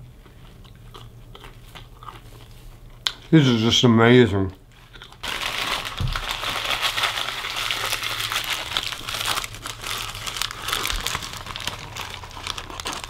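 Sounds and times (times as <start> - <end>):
paper napkin crumpling: 5.2 - 13.0.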